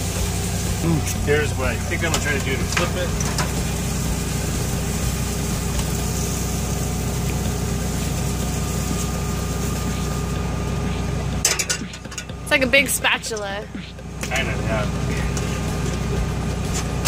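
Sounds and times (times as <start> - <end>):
generator idling: 0.0 - 17.0.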